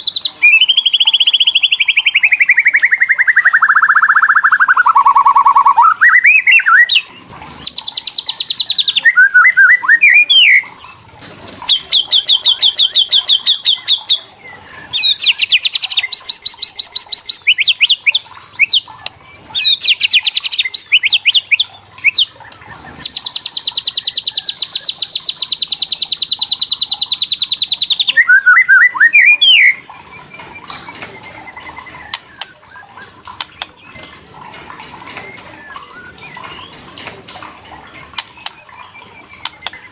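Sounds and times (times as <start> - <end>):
rising whistled bird notes: 0.2 - 7.0.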